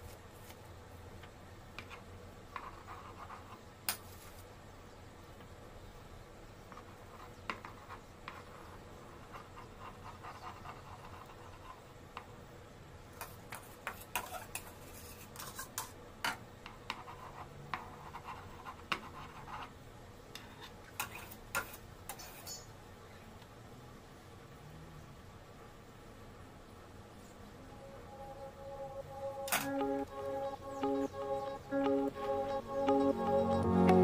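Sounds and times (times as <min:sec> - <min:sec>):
spatula scraping frosting: 0:13.5 - 0:15.9, 0:20.4 - 0:22.6.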